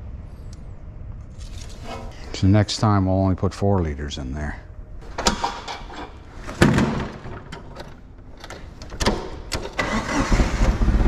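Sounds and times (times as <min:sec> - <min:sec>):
forklift seat and cover knocking shut: 0:06.5 - 0:07.7
forklift engine starting and idling: 0:08.4 - 0:11.0.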